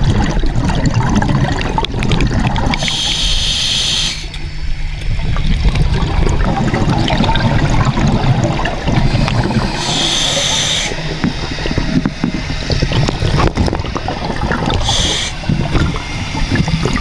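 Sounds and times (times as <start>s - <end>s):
underwater bubbles gurgling: 0.0s - 17.0s
regulator breathing hiss: 2.8s - 4.7s, 9.0s - 11.6s, 14.8s - 16.9s.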